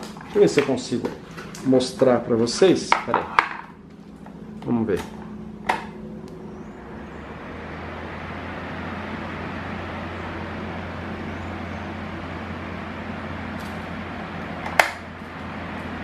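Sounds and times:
fan motor hum: 0:00.0 - 0:16.0
table fan rushing air: 0:00.0 - 0:16.0.

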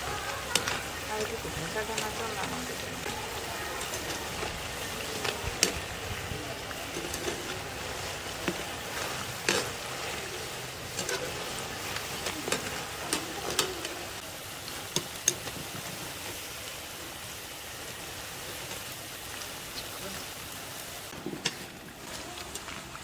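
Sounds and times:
wire skimmer scraping and tapping pan: 0:00.0 - 0:16.4, 0:21.1 - 0:23.0
food deep-frying in oil: 0:00.0 - 0:23.0.

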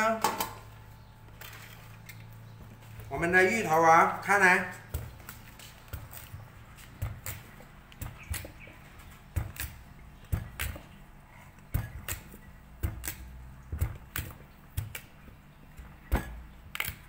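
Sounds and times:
knife chopping on wooden board: 0:04.6 - 0:17.0.

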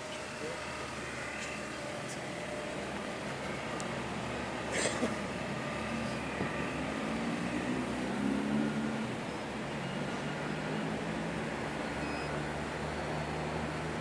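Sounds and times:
distant road traffic hum: 0:00.0 - 0:14.0
low engine note: 0:00.0 - 0:14.0.

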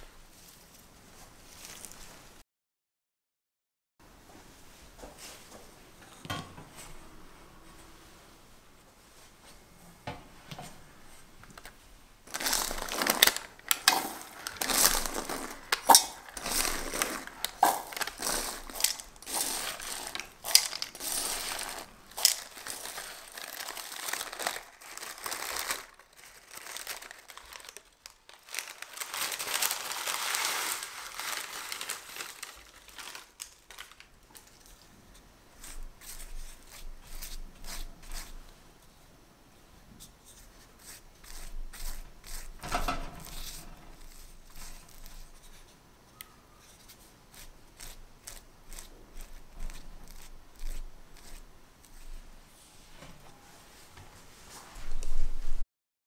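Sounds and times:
baking paper crinkling: 0:00.2 - 0:02.4, 0:11.5 - 0:35.0, 0:35.6 - 0:38.5, 0:40.1 - 0:45.8, 0:46.6 - 0:52.3
dried beans rattling: 0:12.2 - 0:34.8, 0:40.8 - 0:45.7.

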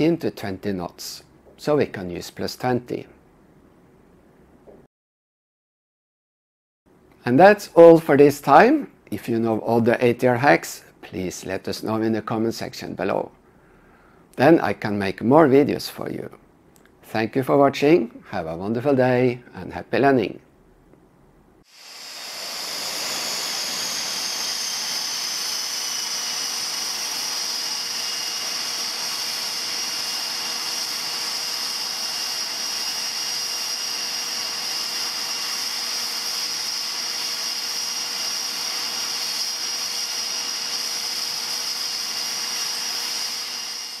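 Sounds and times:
turbine engine whine: 0:21.7 - 0:33.7.

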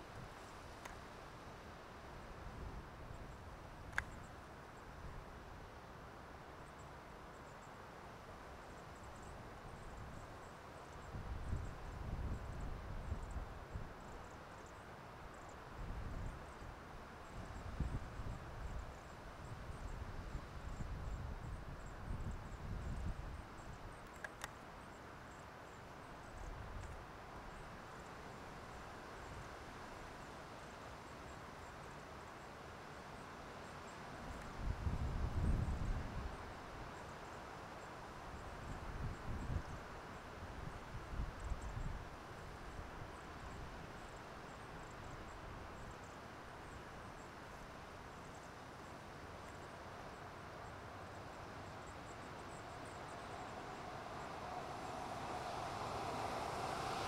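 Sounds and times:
low rumble and hiss: 0:24.7 - 0:57.0
pickup truck road noise: 0:52.6 - 0:57.0.

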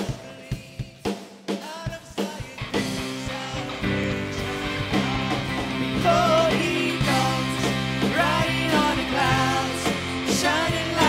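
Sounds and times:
instrumental band music: 0:00.0 - 0:11.0
sliding guitar lead melody: 0:03.0 - 0:11.0.

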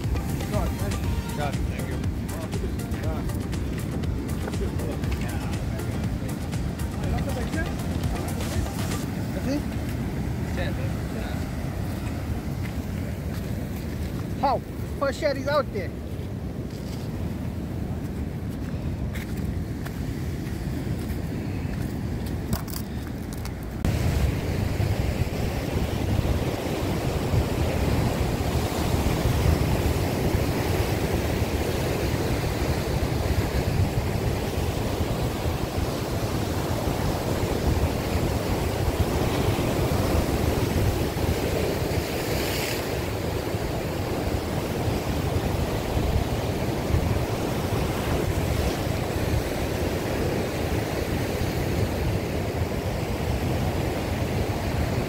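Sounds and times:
ocean surf breaking on rocks: 0:00.0 - 0:55.0
wind buffeting microphone: 0:01.8 - 0:55.0.

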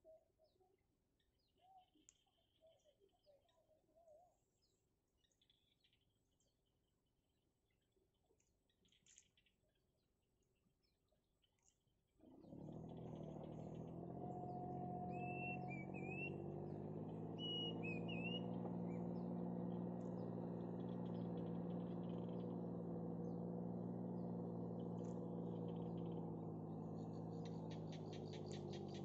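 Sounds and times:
steady low hum: 0:12.4 - 0:29.0
warbling bird chirps: 0:12.4 - 0:29.0
fast run of clicks: 0:16.2 - 0:29.0.

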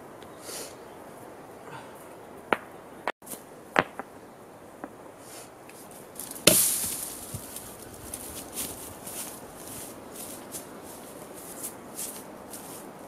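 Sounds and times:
stones clacking together: 0:02.5 - 0:04.2, 0:06.2 - 0:07.9
rustling: 0:05.2 - 0:13.0.

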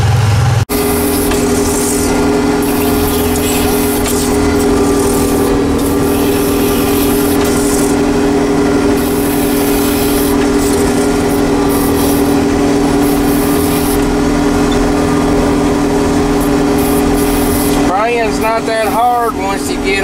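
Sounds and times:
tractor engine droning: 0:00.0 - 0:20.0.

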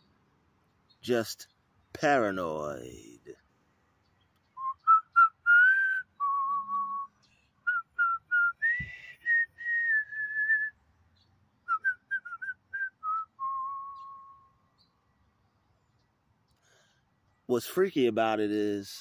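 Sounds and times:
man whistling a slow tune: 0:04.6 - 0:10.8, 0:11.7 - 0:14.5.

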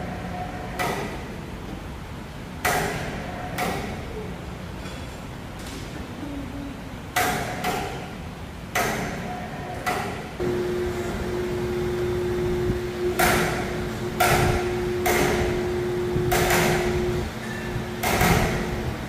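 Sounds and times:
steady low hum: 0:00.0 - 0:19.0
sharp ringing metal knocks: 0:10.4 - 0:18.9.

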